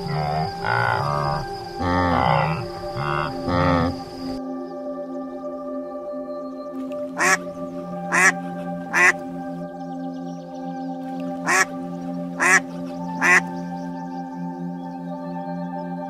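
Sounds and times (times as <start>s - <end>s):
duck quacking: 0.0s - 4.0s, 7.2s - 7.4s, 8.1s - 9.2s, 11.5s - 11.7s, 12.4s - 12.6s, 13.2s - 13.4s
soft ambient music: 0.0s - 16.0s.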